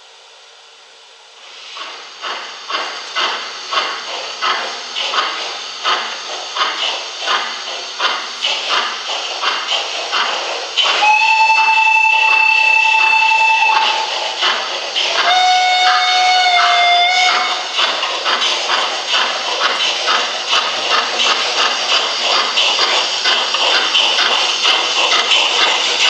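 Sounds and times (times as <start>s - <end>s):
steam locomotive exhaust chuffs: 0.0s - 26.0s
steam whistle: 10.9s - 14.2s, 15.1s - 17.7s.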